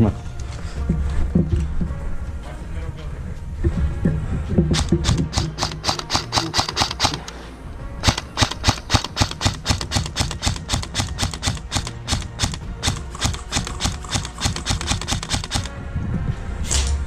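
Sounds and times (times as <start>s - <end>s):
airsoft gunfire clicks: 4.8s - 7.4s, 8.0s - 15.7s.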